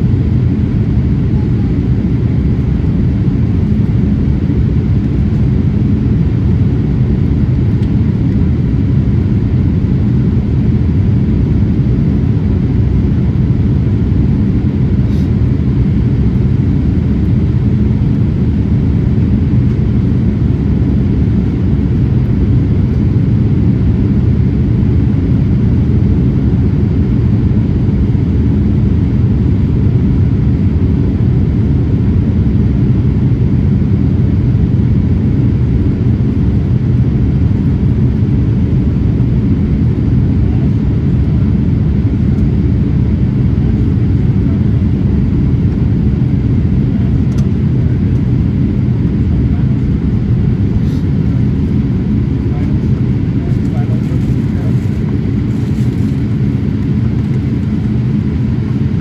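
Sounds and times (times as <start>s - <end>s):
airplane cabin engine rumble: 0.0s - 59.0s.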